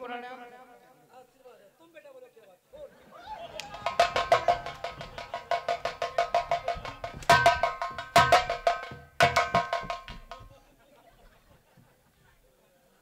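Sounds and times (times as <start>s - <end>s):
fast drum strokes: 3.6s - 10.6s
steady held tones: 3.6s - 10.6s.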